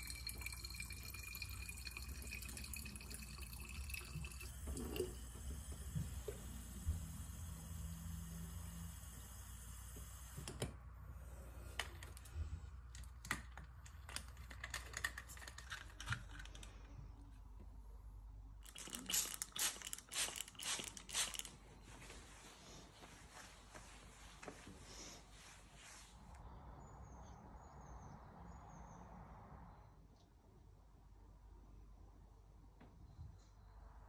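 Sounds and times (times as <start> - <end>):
tap water running into bottle: 0.0 - 10.7.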